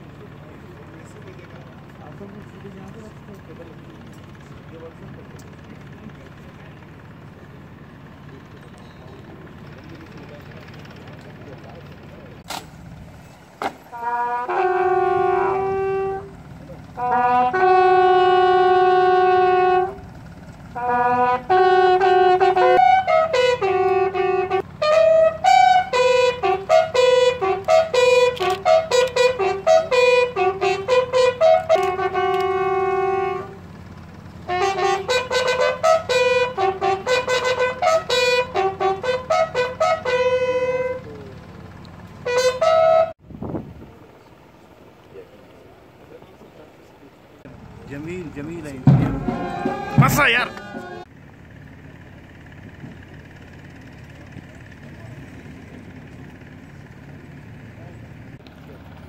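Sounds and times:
bugle call: 0:13.8 - 0:43.2, 0:47.6 - 0:51.1.

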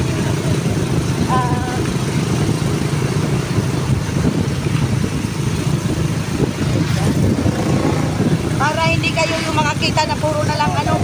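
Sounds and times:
motorcycle engine running: 0:00.0 - 0:11.0
air rushing: 0:03.3 - 0:09.8.

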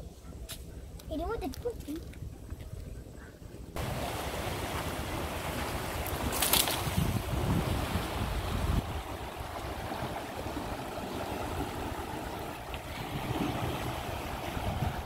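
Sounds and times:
water rushing from sluice gate: 0:03.8 - 0:12.0.

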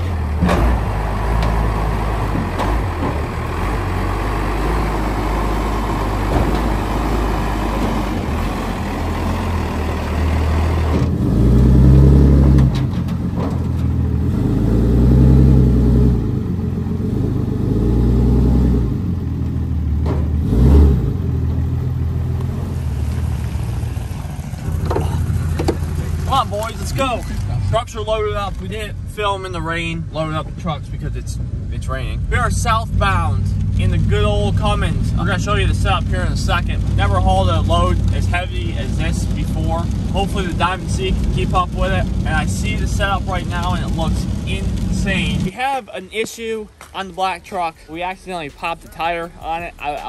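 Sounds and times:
pickup truck engine revving: 0:00.0 - 0:45.7
sharp thump: 0:20.0 - 0:20.4.

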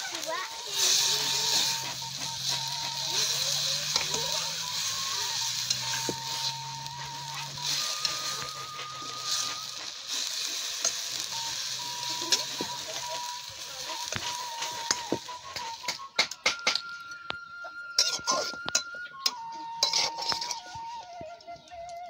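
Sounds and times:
vegetables sizzling in a wok: 0:00.0 - 0:16.1
metal spatula scraping pan: 0:00.2 - 0:16.1, 0:18.0 - 0:20.7.

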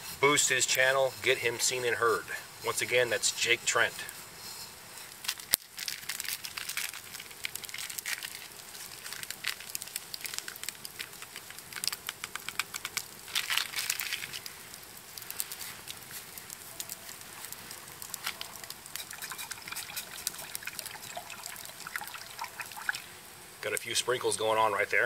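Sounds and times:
campfire crackling and popping: 0:00.2 - 0:25.0.

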